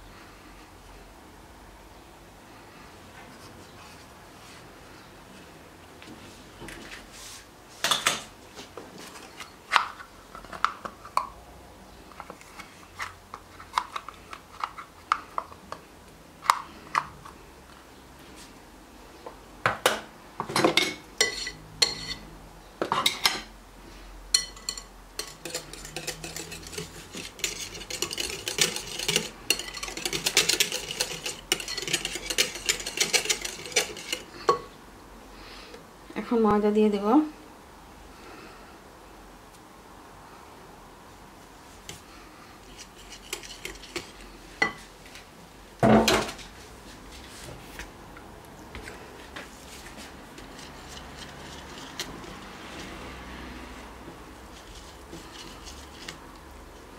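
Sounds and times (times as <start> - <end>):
whisk clinking against glass bowl: 24.3 - 34.6.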